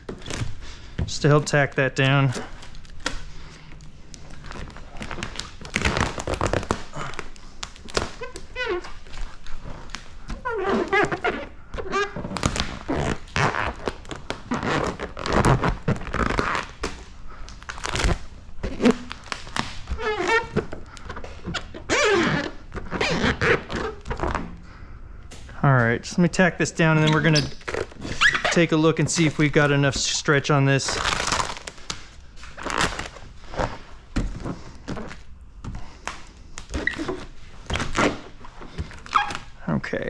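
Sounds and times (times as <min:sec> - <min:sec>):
plastic film crinkling: 0:00.0 - 0:24.5, 0:26.3 - 0:35.3
short squeaks: 0:26.8 - 0:28.7.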